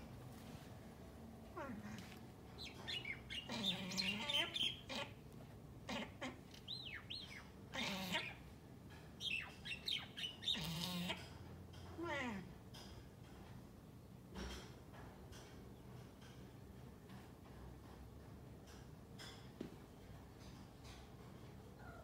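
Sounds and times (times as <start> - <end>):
myna squawks and gurgles: 7.7 - 8.4, 10.4 - 11.2.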